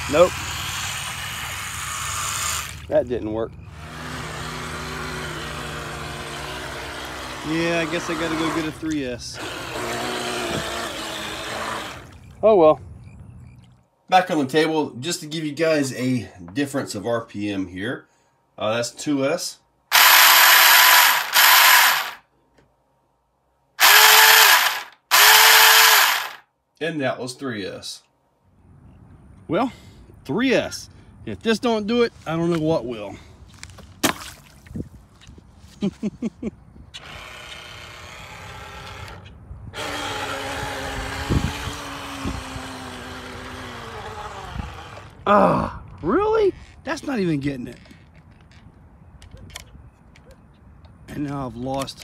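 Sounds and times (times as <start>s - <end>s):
electric motor whining: 3.7s - 12.1s, 19.9s - 22.2s, 23.8s - 26.4s, 37.0s - 45.2s.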